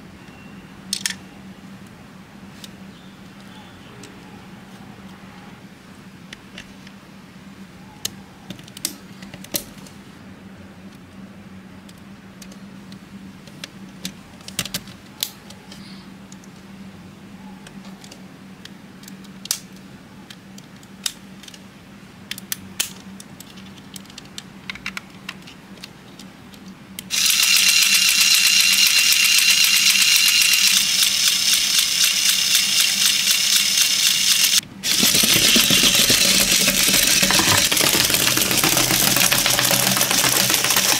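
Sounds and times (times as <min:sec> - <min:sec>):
plastic toy parts clicking together: 0:00.9 - 0:01.2, 0:19.0 - 0:21.6, 0:22.3 - 0:40.9
electric motor gear whine: 0:27.1 - 0:37.8.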